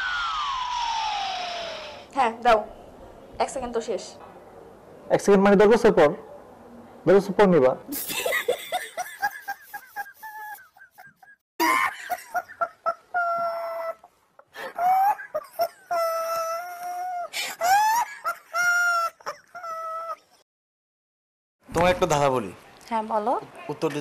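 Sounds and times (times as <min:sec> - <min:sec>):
high-pitched voice wailing and crying: 0:13.1 - 0:14.1.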